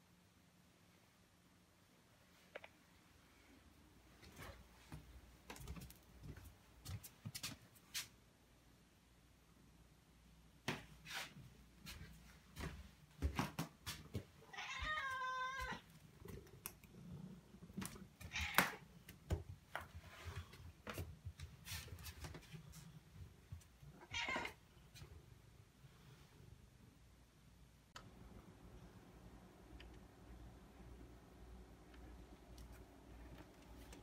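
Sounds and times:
cat meowing: 14.5 - 15.9, 18.2 - 18.8, 24.0 - 24.6.

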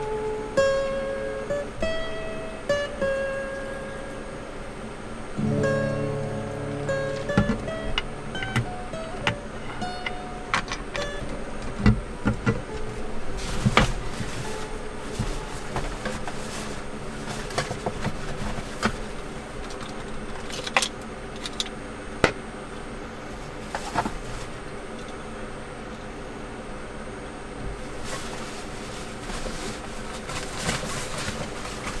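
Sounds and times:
faint high whine: 0.0 - 20.3
steady hum: 0.0 - 32.0.

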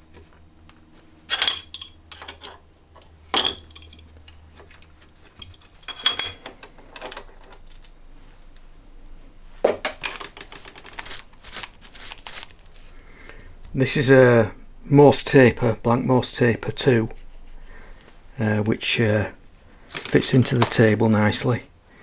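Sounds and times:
steel tools clinking on metal table: 1.3 - 4.1, 5.1 - 6.6.

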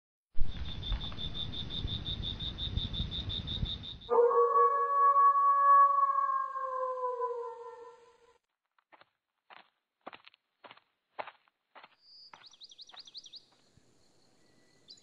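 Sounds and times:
long falling howl: 4.1 - 8.3.

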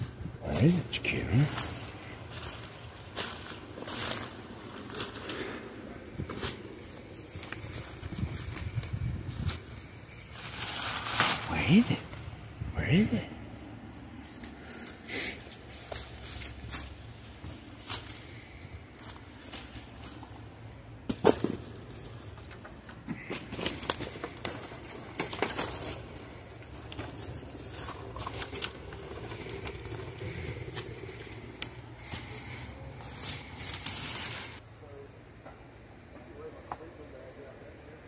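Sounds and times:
footsteps crunching through brush: 0.0 - 12.2, 13.8 - 34.6
twigs snapping: 15.4 - 34.6.

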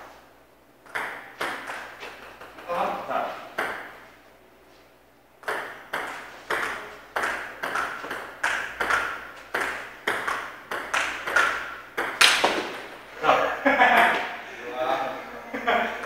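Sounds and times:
ping pong ball clicking: 0.9 - 2.7, 5.4 - 12.9.

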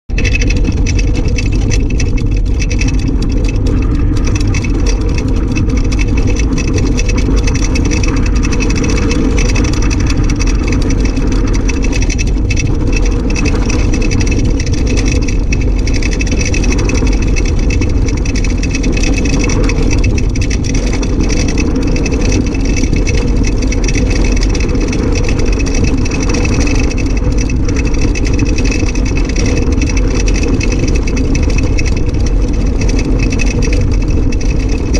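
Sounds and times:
wheels rumbling and chassis rattling: 0.0 - 34.9.

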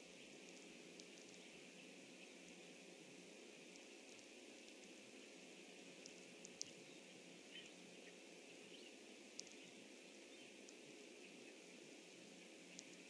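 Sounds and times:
faint steady microphone hiss: 0.0 - 13.0
faint high ticks: 0.3 - 2.6, 3.6 - 5.0, 6.0 - 6.8, 9.3 - 9.8, 10.5 - 11.4, 12.1 - 13.0.

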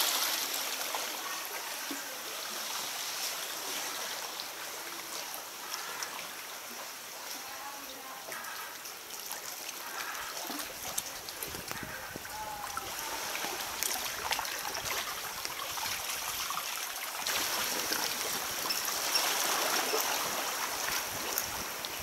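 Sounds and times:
small splashes and drips: 0.0 - 22.0
water lapping against rock: 8.4 - 22.0.

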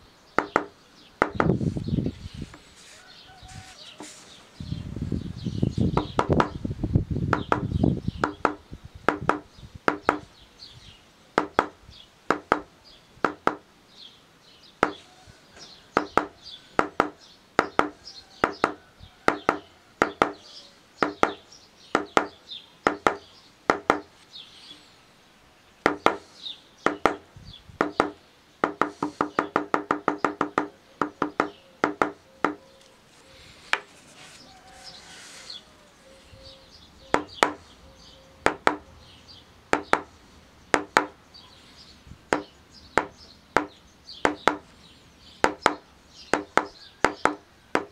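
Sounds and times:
mallet knocking leather stamping tool: 7.3 - 10.3, 16.0 - 20.4, 22.9 - 24.1, 25.8 - 26.2, 27.8 - 32.6, 40.7 - 41.2, 42.3 - 44.6, 45.4 - 47.9.

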